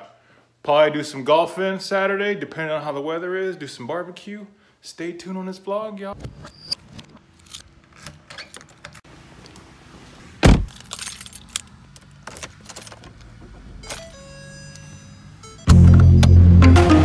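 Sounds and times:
car door shutting: 0:10.4 - 0:10.8
keys jangling: 0:10.6 - 0:13.2.

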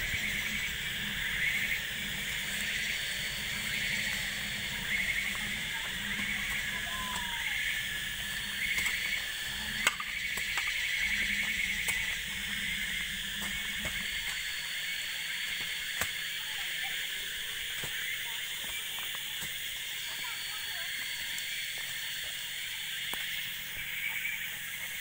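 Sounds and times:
car engine rumbling: 0:00.0 - 0:14.5
insects droning: 0:00.0 - 0:25.0.

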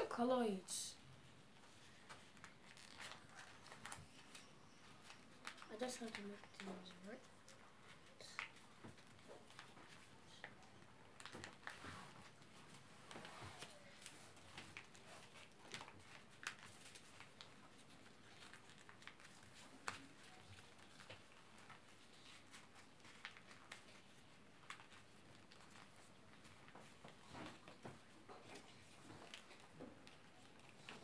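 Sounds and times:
paper rustling and crinkling: 0:01.5 - 0:31.0
sharp paper ticks: 0:02.1 - 0:10.6, 0:13.6 - 0:27.9.

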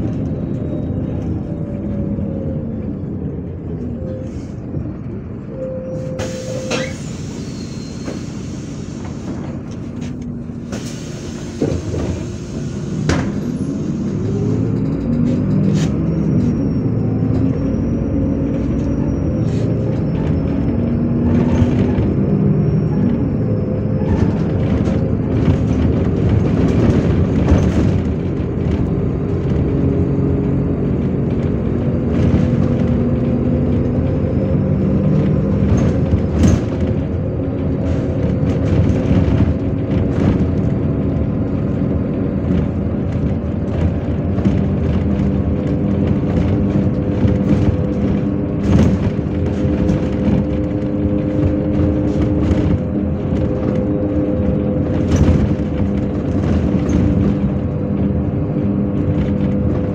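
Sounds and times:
bus engine accelerating: 0:00.0 - 0:59.9
knocks and rattles: 0:14.1 - 0:17.5, 0:35.4 - 0:59.9.

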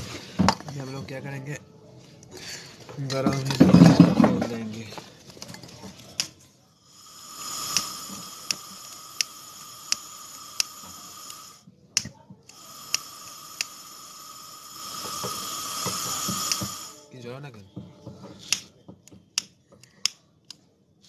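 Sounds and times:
gas torch hissing: 0:06.0 - 0:17.1.

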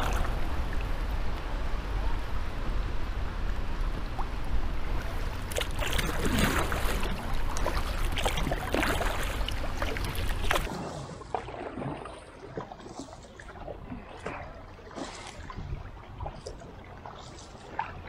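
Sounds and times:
paddle splashing in water: 0:00.0 - 0:02.8, 0:03.9 - 0:18.0
low rumble: 0:00.0 - 0:08.7.

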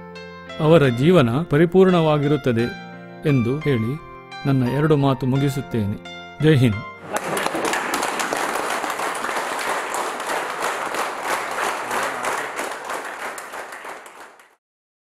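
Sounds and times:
crowd clapping: 0:07.0 - 0:14.6.

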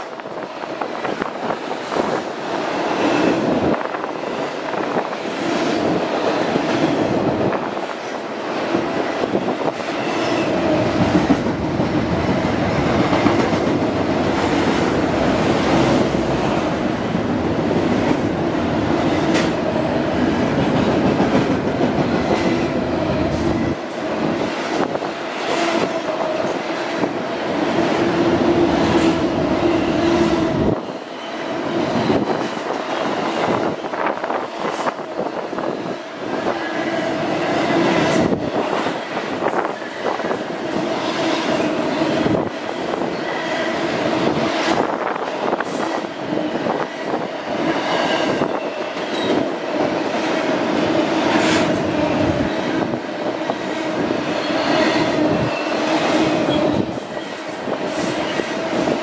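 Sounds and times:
freight train wheels rumbling: 0:00.0 - 0:59.0.

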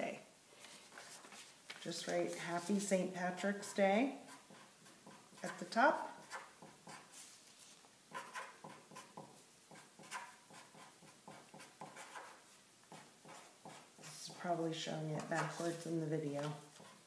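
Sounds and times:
marker scratching on paper: 0:03.4 - 0:07.4, 0:08.1 - 0:14.4, 0:15.2 - 0:16.0, 0:16.7 - 0:17.0.

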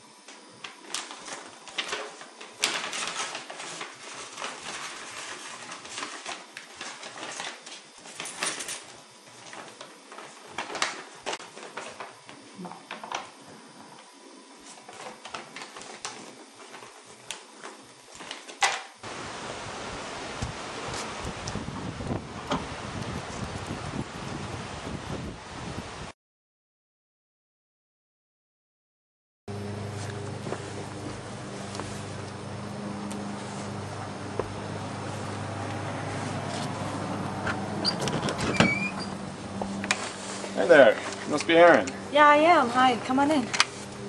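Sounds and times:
paper rustling: 0:00.7 - 0:12.1, 0:14.6 - 0:18.6.

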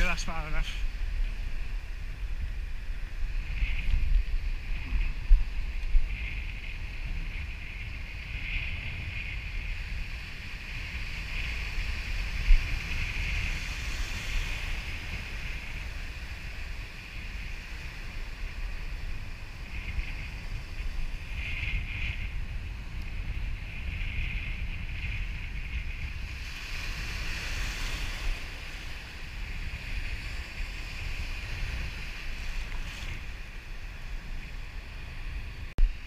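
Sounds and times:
surf washing in shallows: 0:00.0 - 0:36.0
wind buffeting microphone: 0:00.0 - 0:36.0.

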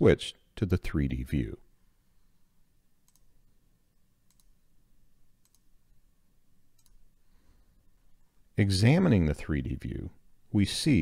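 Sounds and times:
faint low room hum: 0:00.0 - 0:11.0
computer mouse clicks: 0:03.0 - 0:03.3, 0:04.3 - 0:04.6, 0:05.4 - 0:05.7, 0:06.8 - 0:07.0.

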